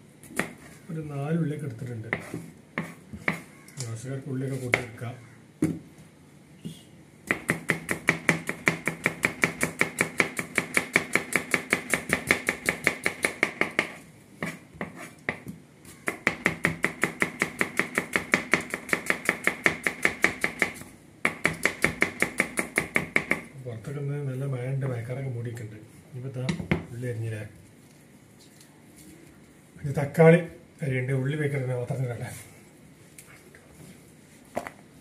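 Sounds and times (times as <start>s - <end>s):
knife chopping on plastic board: 7.3s - 23.5s.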